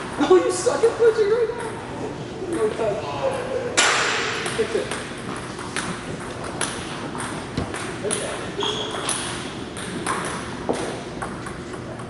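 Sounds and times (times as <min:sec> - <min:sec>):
table tennis balls bouncing: 0:01.3 - 0:01.8, 0:02.4 - 0:12.0
brief high squeak: 0:08.6 - 0:09.1.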